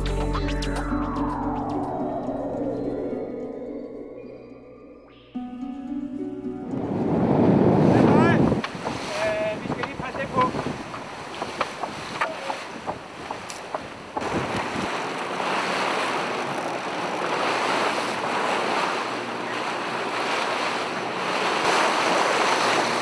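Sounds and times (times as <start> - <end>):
wind buffeting microphone: 6.6 - 23.0
water rushing past boat hull: 6.7 - 23.0.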